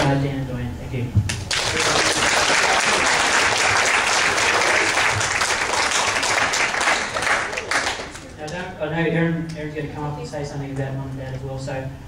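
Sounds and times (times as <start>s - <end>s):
people applauding: 1.3s - 8.4s.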